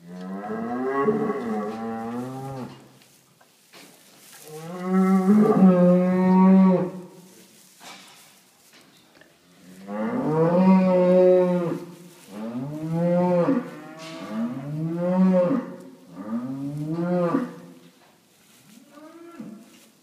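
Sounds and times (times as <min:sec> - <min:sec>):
cow mooing: 0:12.5 - 0:17.6.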